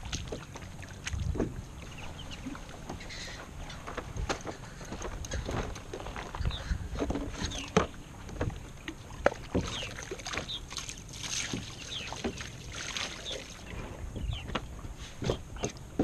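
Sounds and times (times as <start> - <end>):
water splashing against kayak hull: 0.0 - 15.8.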